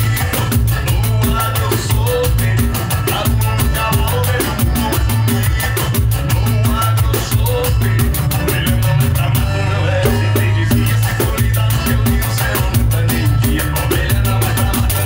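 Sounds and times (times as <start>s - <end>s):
recorded band music: 0.0s - 15.0s.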